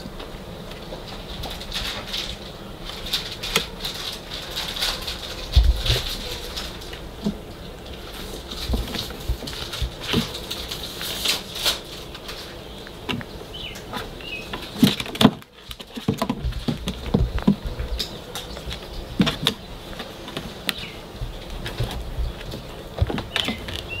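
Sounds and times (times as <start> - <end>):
dull thumps: 13.0 - 24.0.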